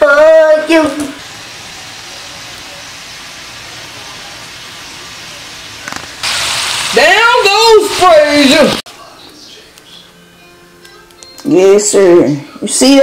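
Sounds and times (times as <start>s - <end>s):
fries sizzling in hot oil: 0.0s - 8.8s.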